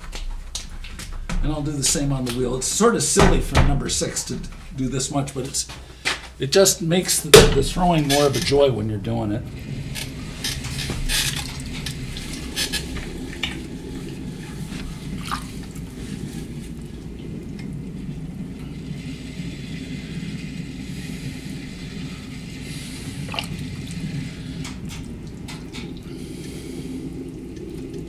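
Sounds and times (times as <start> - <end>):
potter's wheel hum: 7.0 - 28.0
wet clay squishing: 23.2 - 23.6.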